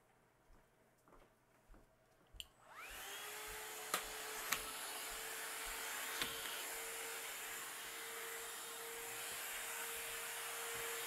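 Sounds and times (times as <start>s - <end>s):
vacuum cleaner motor running: 2.6s - 11.0s
vacuum cleaner switch click: 3.9s - 4.7s, 6.2s - 6.6s.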